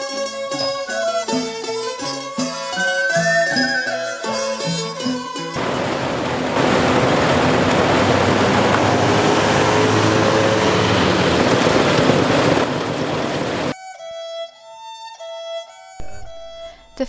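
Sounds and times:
violin music: 0.0s - 5.6s, 13.7s - 17.0s
auto-rickshaw engines passing: 5.5s - 13.8s
road hiss: 5.6s - 13.7s.

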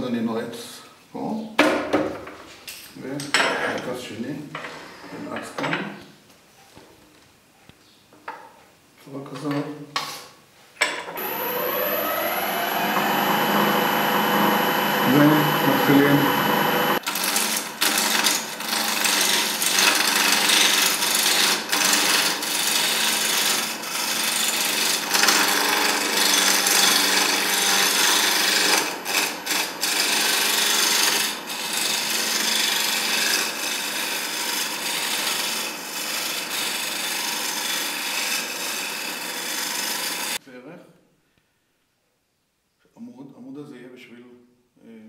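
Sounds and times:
faint motor hum: 11.1s - 21.1s
turning tool scraping wood: 11.2s - 36.9s.

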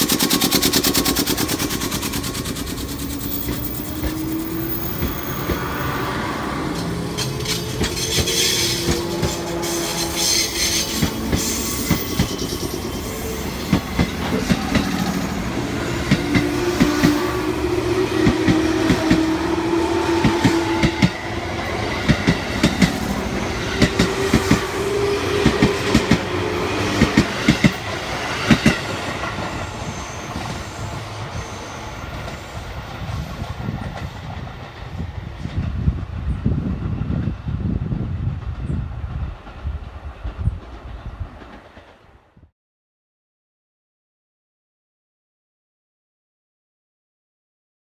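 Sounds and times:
wheels clacking over rail joints: 0.0s - 13.0s, 13.6s - 31.4s.

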